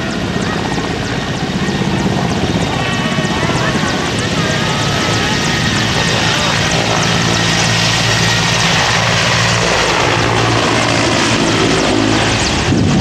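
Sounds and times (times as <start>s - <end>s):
helicopter taking off: 0.0s - 13.0s.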